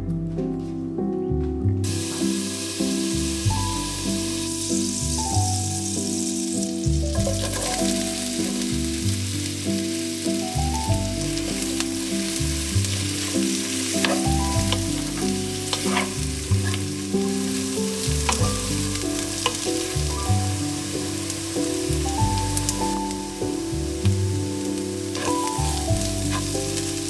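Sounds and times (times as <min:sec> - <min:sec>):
soft background music: 0:00.0 - 0:27.0
onions sizzling in a frying pan: 0:01.8 - 0:27.0
wooden spatula scraping a pan: 0:07.2 - 0:08.2, 0:11.6 - 0:23.2, 0:24.5 - 0:27.0.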